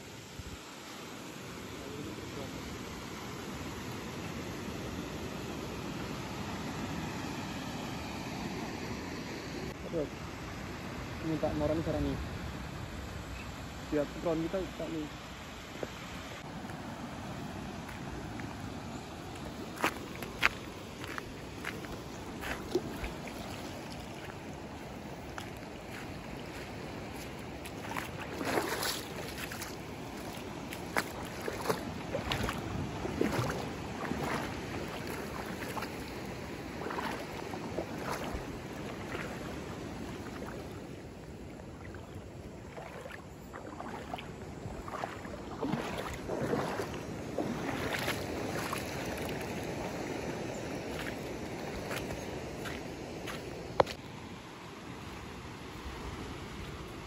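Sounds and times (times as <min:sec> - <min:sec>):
small waves washing ashore: 0:00.0 - 0:57.0
footsteps crunching on sand: 0:17.8 - 0:40.8, 0:42.6 - 0:54.0.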